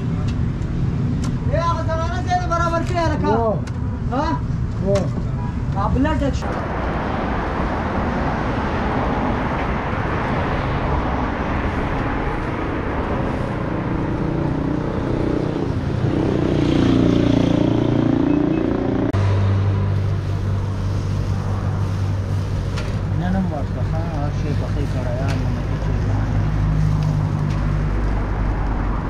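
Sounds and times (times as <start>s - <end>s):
street traffic: 0.0s - 29.0s
vehicle passing: 6.0s - 29.0s.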